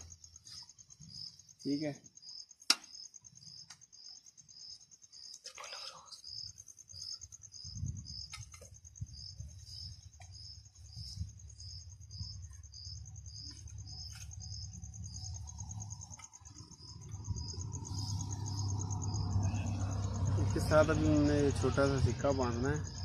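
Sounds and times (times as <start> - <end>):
insects trilling: 0.0 - 23.0
pulsed insect chirp: 0.0 - 23.0
low rumble: 14.8 - 21.1.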